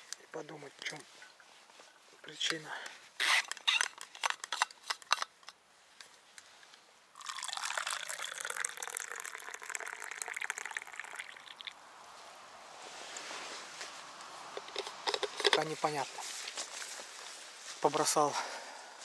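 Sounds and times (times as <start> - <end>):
tea pouring into steel cup: 7.2 - 11.8
thermos clicks and knocks: 14.6 - 15.7.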